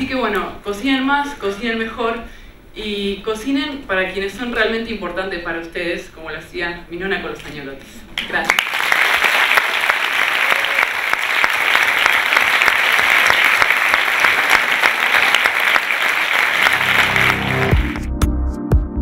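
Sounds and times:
audience applauding: 8.4s - 18.1s.

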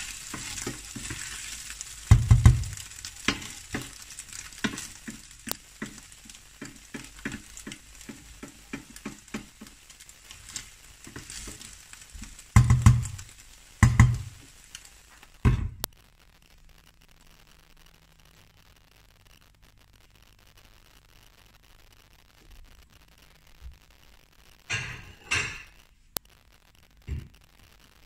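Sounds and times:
spatula scraping a pan: 0.0s - 13.2s
food sizzling in a pan: 0.0s - 28.0s.

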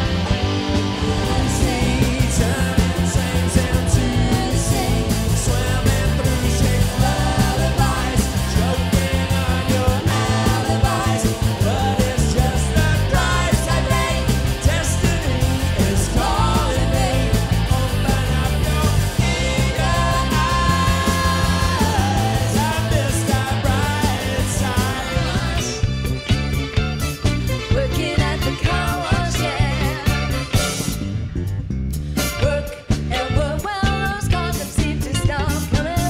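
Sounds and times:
drum kit: 0.0s - 36.0s
electric guitar: 0.0s - 36.0s
keyboards: 0.0s - 36.0s
women singing: 1.1s - 25.8s, 27.8s - 30.3s.

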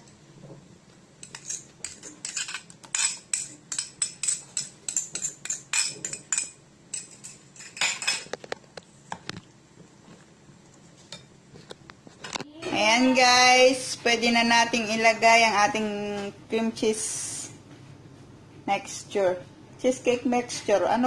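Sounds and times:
spatula clinking and scraping a bowl: 1.2s - 8.2s.

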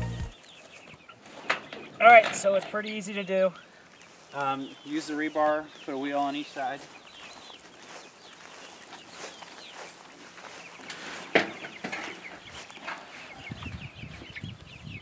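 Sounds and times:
chicks chirping: 0.0s - 15.0s.

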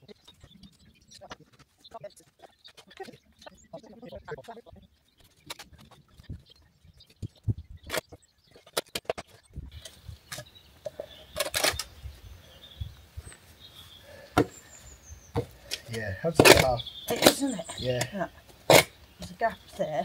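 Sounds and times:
digging tool knocking stones: 15.4s - 19.0s.

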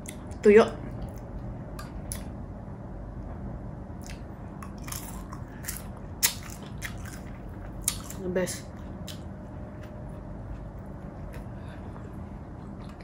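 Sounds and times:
person chewing crunchy fish: 4.0s - 8.2s.

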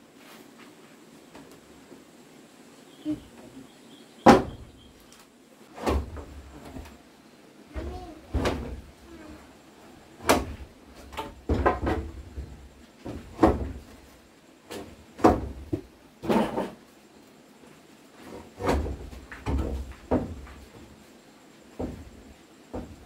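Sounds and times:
wood knocks and thumps: 4.2s - 4.8s, 5.8s - 7.0s, 7.7s - 8.9s, 10.2s - 14.1s, 14.7s - 16.8s, 18.2s - 21.0s, 21.7s - 23.0s.

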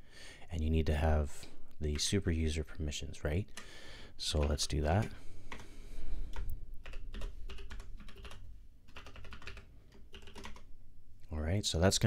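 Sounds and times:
keyboard typing: 4.3s - 10.7s.

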